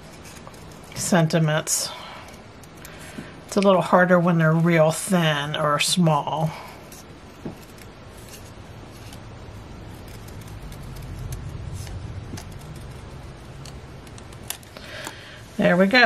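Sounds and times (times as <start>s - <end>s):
low steady rumble: 0.0s - 16.0s.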